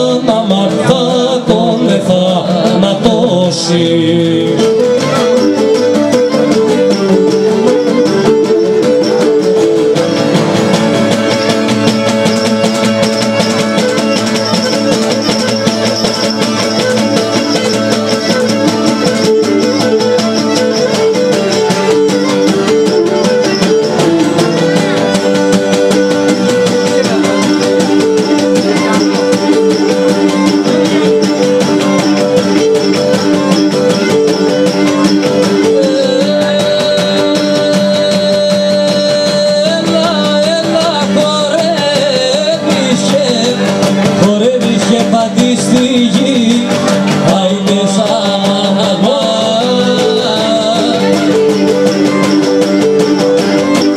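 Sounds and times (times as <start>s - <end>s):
bowed lyra melody: 0.0s - 53.9s
lutes strumming and plucking: 0.0s - 53.9s.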